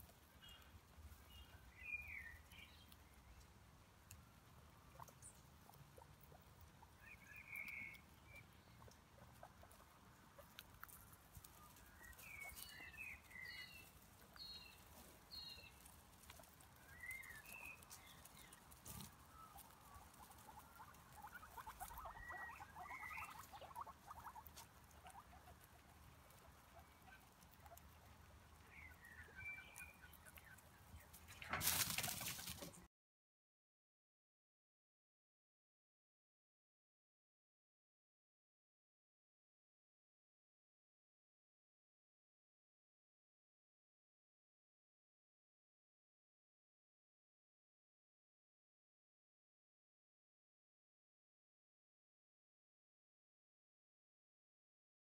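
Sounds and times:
faint chewing: 0:00.0 - 0:32.8
rustling of dry leaves: 0:10.4 - 0:22.4, 0:23.1 - 0:32.8.

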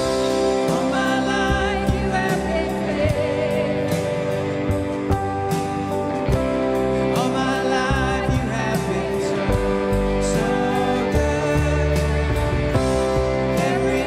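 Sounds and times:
worship band playing gospel song: 0:00.0 - 0:14.0
person singing: 0:00.2 - 0:05.3, 0:06.7 - 0:14.0.

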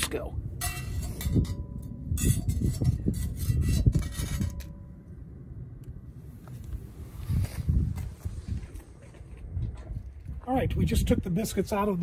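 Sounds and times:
wind rumble on microphone: 0:00.0 - 0:12.0
metal spatula scraping pot: 0:02.2 - 0:04.7.

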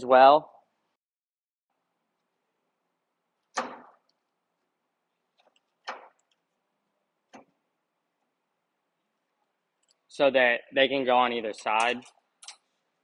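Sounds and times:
sharp knocks: 0:03.6 - 0:04.0.

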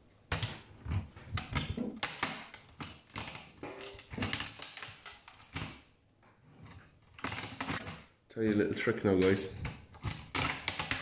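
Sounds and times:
screwdriver clicking and scraping metal: 0:09.2 - 0:11.0.

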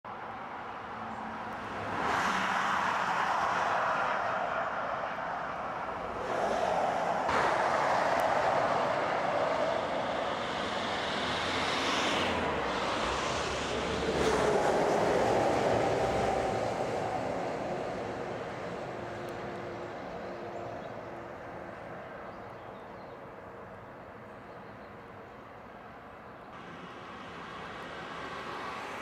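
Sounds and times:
motorway traffic rushing: 0:00.1 - 0:29.0.

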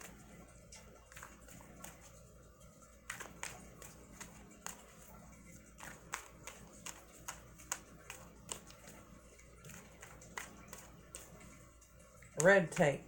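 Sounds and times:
cards being shuffled: 0:01.0 - 0:02.2, 0:03.0 - 0:11.6.

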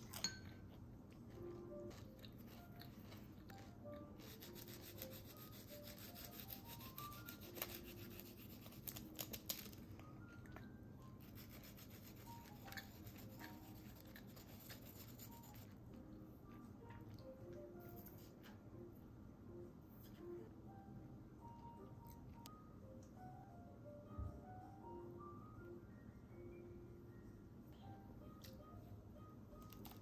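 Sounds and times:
faint background music: 0:00.0 - 0:30.0
garlic rasping on crusty bread: 0:04.2 - 0:09.7, 0:11.4 - 0:15.6.

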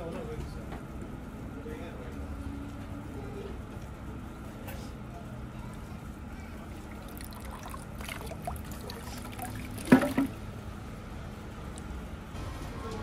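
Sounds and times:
water trickling into stone basin: 0:06.7 - 0:10.4.

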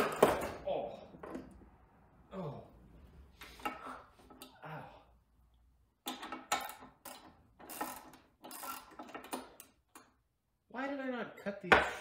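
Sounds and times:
hard objects knocking and clattering: 0:00.0 - 0:01.6, 0:06.0 - 0:08.2.

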